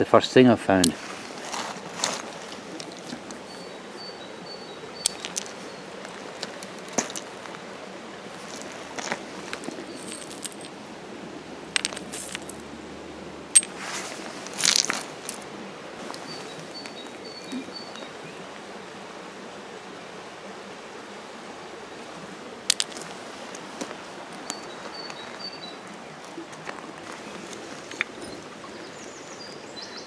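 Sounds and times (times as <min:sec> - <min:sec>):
steady background hiss: 0:00.0 - 0:30.0
pebbles clicking and crunching: 0:01.5 - 0:03.5, 0:05.0 - 0:07.4, 0:08.4 - 0:10.8, 0:11.7 - 0:12.7, 0:14.5 - 0:15.4, 0:22.7 - 0:23.2.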